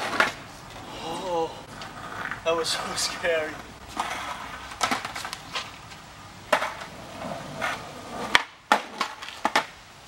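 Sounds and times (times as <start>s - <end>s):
skateboard deck clacks: 0.0s - 0.4s, 4.0s - 5.7s, 6.5s - 9.8s
skateboard landing slap: 0.0s - 0.4s, 4.8s - 5.7s, 6.5s - 6.9s, 7.6s - 9.8s
skateboard wheels rolling on asphalt: 0.0s - 10.0s
skateboard tail pop: 7.6s - 9.8s.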